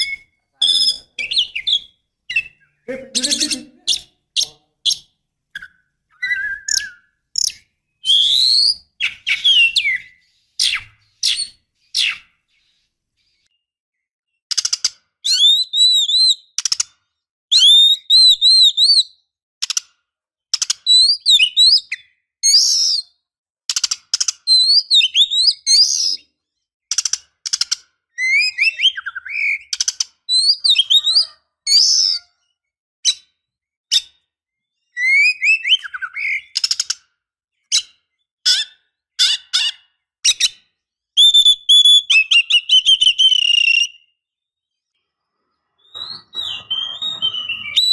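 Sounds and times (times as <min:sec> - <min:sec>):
bird chirping and whistling: 0:00.0 - 0:12.2, 0:15.3 - 0:16.6, 0:17.5 - 0:19.2, 0:20.6 - 0:23.1, 0:24.5 - 0:26.2, 0:28.2 - 0:32.3, 0:34.8 - 0:37.0, 0:41.2 - 0:44.2, 0:45.8 - 0:47.9.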